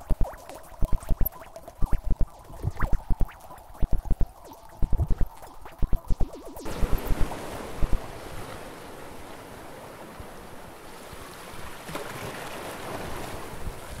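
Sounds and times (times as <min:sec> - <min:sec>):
wind on microphone: 0:00.0 - 0:08.9
sea surf: 0:06.6 - 0:14.0.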